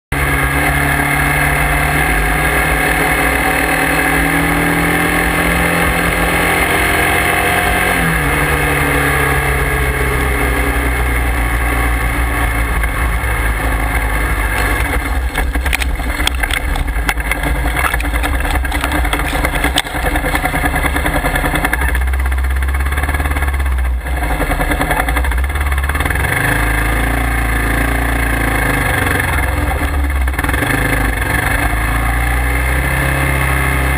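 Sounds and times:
motorcycle engine running: 0.1 - 33.9
knocks and bumps: 12.8 - 22.1.

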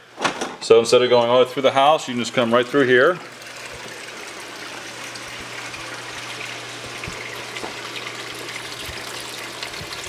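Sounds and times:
running splashing water: 2.0 - 10.0.

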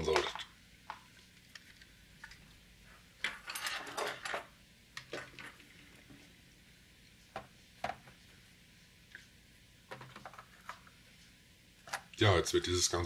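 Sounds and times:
tools and plastic parts clattering: 3.2 - 5.6.

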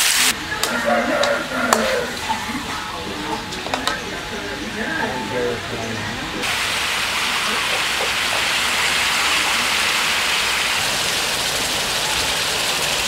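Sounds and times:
meat sizzling in a wok: 0.0 - 2.4, 6.4 - 13.0.

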